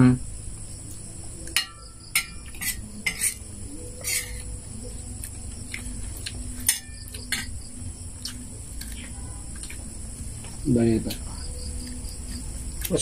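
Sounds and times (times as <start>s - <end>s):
insects buzzing: 0.0s - 13.0s
spoon and dishes clinking: 1.4s - 4.5s, 6.6s - 7.6s.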